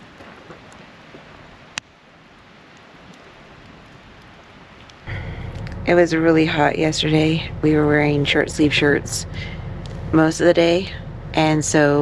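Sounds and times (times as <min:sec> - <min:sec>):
fire crackles and pops: 0:00.0 - 0:07.7, 0:09.3 - 0:10.2
campfire hissing: 0:00.0 - 0:12.0.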